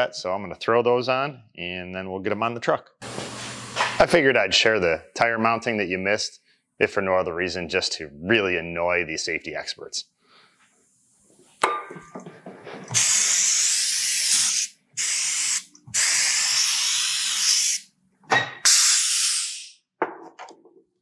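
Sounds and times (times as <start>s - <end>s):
compressed air hissing: 12.9s - 17.9s, 18.6s - 19.8s.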